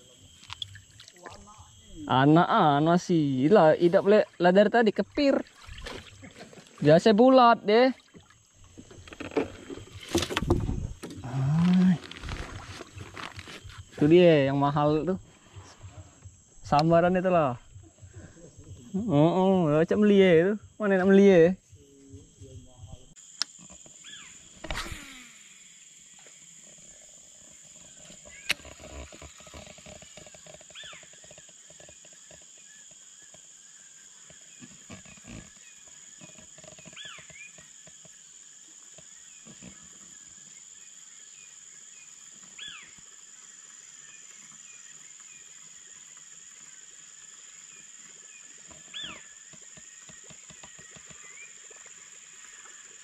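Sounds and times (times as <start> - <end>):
insects droning: 0.0 - 53.0
sharp click: 24.6 - 25.2.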